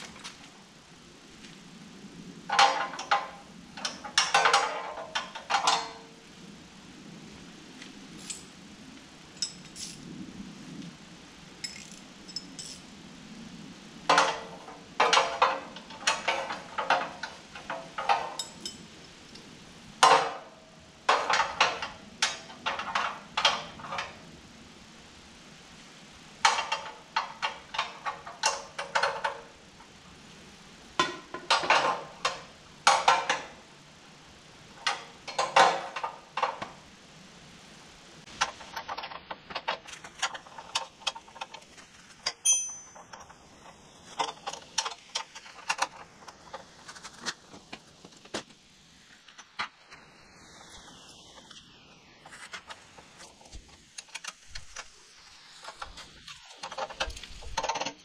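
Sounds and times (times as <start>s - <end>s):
hand tools clinking on metal: 2.5s - 6.2s, 8.2s - 8.5s, 9.4s - 10.0s, 11.6s - 12.8s, 14.1s - 24.1s, 42.2s - 43.4s.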